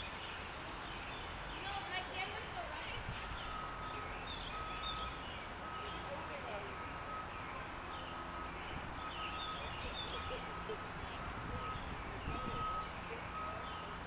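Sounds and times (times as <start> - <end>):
small birds chirping: 0.0 - 14.0
high pulsing beep: 11.4 - 13.6.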